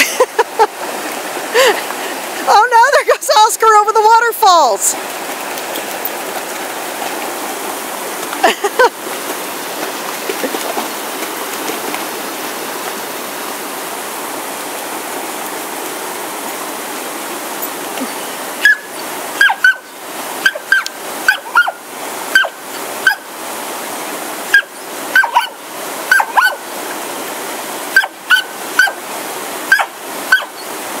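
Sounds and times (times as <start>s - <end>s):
creek and waterfall rushing: 0.0s - 31.0s
dog barking excitedly: 18.6s - 23.2s, 24.5s - 26.6s, 27.9s - 29.0s, 29.7s - 30.6s.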